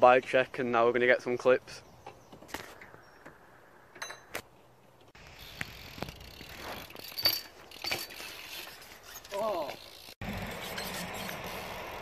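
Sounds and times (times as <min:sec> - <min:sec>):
bike clicks and knocks: 0:02.0 - 0:11.6
bike rolling on concrete: 0:04.8 - 0:12.0.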